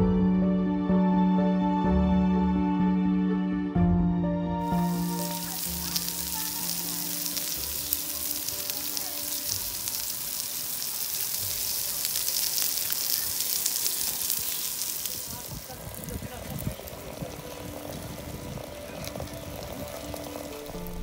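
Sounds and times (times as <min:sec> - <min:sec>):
soft music: 0:00.0 - 0:14.8, 0:15.5 - 0:21.0
meat sizzling on grill pan: 0:04.6 - 0:21.0.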